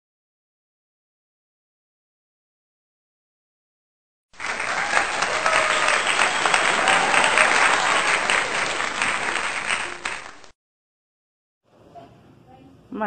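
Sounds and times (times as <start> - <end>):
crowd clapping: 4.4 - 10.6.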